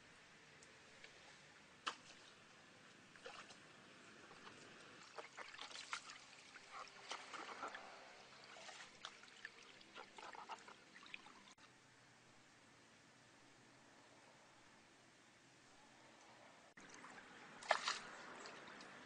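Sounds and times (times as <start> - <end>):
stream water splashing and trickling: 1.8 - 11.7, 16.8 - 19.0.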